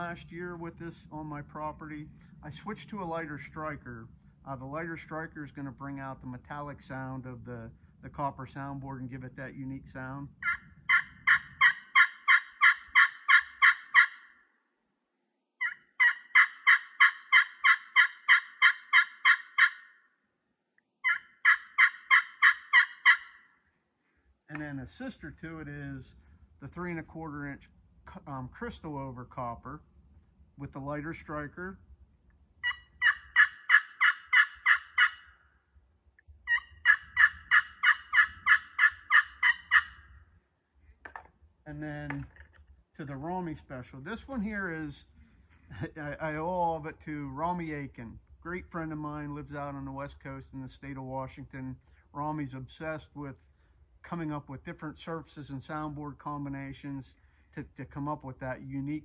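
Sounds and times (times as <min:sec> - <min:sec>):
turkey call yelps: 0:10.4 - 0:14.4, 0:15.6 - 0:20.1, 0:21.0 - 0:23.6, 0:32.6 - 0:35.6, 0:36.4 - 0:40.3.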